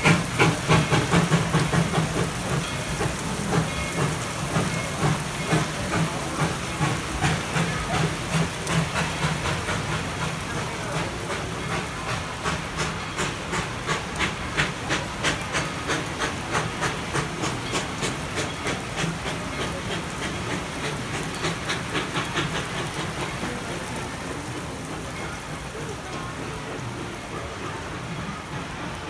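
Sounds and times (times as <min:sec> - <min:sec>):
heavy rain hiss: 0:00.0 - 0:29.0
steam locomotive chuffing: 0:00.0 - 0:29.0.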